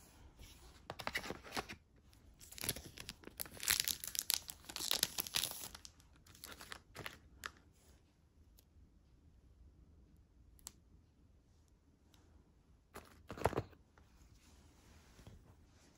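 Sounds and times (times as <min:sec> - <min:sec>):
packaging crinkling and tearing: 0:02.4 - 0:07.5.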